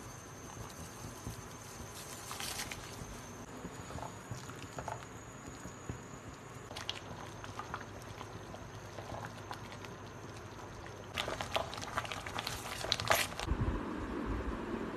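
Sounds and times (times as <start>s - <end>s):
thick stew bubbling: 2.5s - 13.5s.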